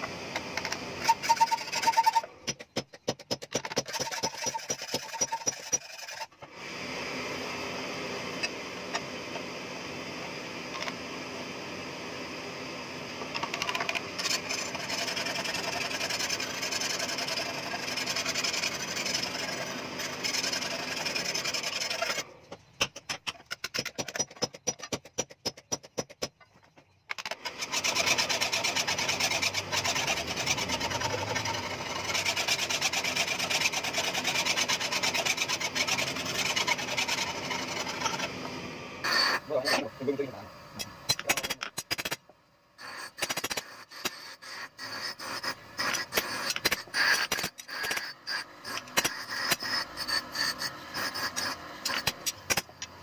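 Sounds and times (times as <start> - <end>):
file rasping on steel blade: 1.0 - 2.3, 3.8 - 6.4, 14.2 - 22.3, 27.4 - 38.4, 42.8 - 52.4.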